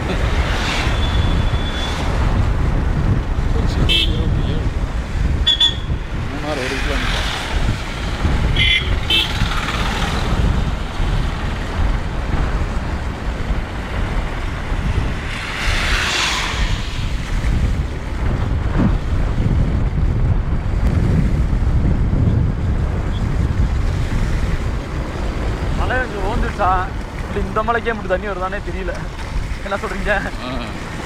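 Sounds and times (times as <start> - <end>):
engine and tyre rumble: 0.0 - 31.0
wind buffeting microphone: 0.0 - 31.0
car horn toot: 3.9 - 4.6, 5.4 - 6.0, 8.5 - 9.4
tyres hissing on wet road: 15.4 - 17.3.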